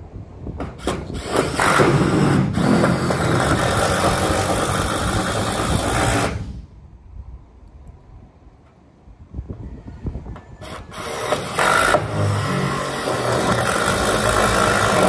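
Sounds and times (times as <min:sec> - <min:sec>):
power drill driving screw into metal: 0:10.6 - 0:15.0.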